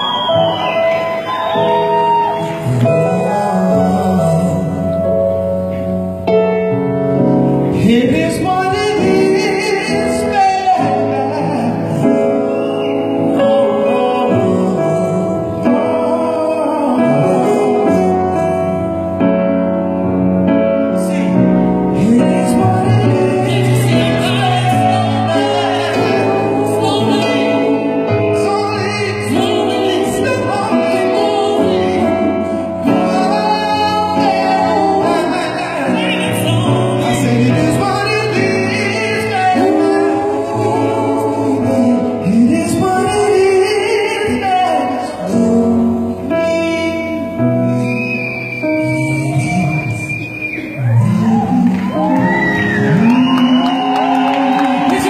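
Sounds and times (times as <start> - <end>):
person singing wordlessly: 21.0 - 47.4.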